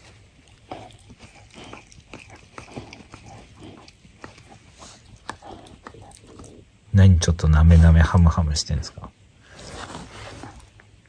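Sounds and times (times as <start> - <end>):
dog licking and nibbling: 0.0 - 6.6.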